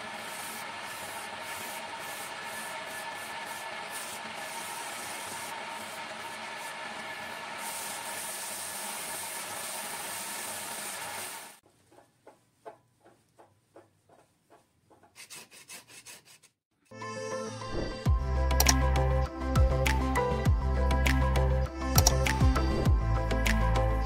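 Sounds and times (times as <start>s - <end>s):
lathe motor hum: 0.0s - 11.5s
sandpaper on spinning wood: 0.0s - 11.6s, 15.2s - 16.5s
knocks and clicks: 11.6s - 15.2s, 22.0s - 22.3s.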